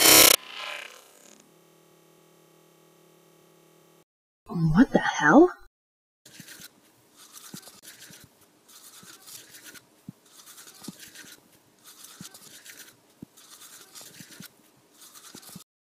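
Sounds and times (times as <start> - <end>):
toothbrush scrubbing teeth: 7.2 - 15.6.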